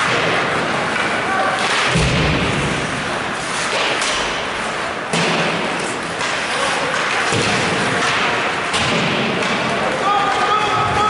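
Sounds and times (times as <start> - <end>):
puck and sticks knocking: 5.1 - 10.9.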